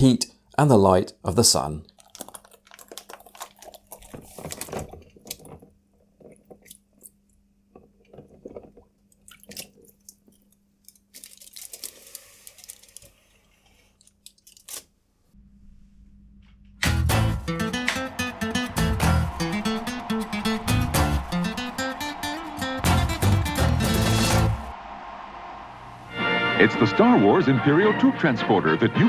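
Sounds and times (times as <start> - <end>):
plastic bag crinkling: 1.9 - 7.1, 9.4 - 13.4, 14.0 - 14.9
aluminium foil rustling: 2.0 - 6.6, 10.8 - 13.4, 14.0 - 14.9
water splashing: 8.0 - 10.4
low steady hum: 15.0 - 16.8.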